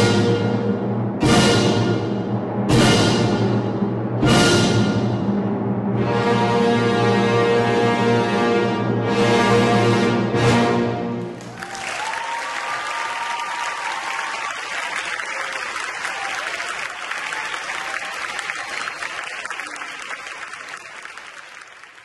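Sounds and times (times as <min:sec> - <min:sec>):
audience applauding: 0:11.2 - 0:22.0
people cheering: 0:11.3 - 0:22.0.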